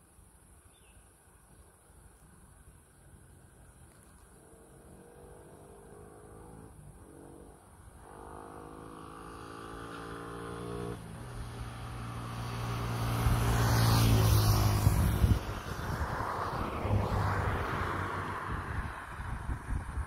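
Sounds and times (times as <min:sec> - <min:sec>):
vehicle engine passing: 0:04.3 - 0:20.0.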